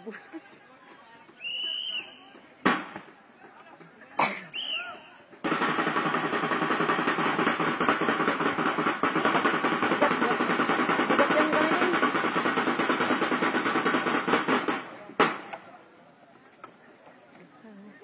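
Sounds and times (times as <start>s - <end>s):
snare drum roll: 2.6s - 3.1s, 5.4s - 15.6s.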